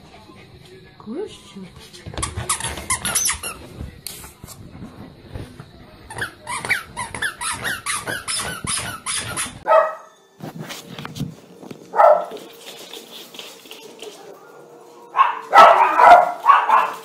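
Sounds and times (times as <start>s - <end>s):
squeaky toy squeaking: 2.2s - 3.6s, 6.1s - 9.7s.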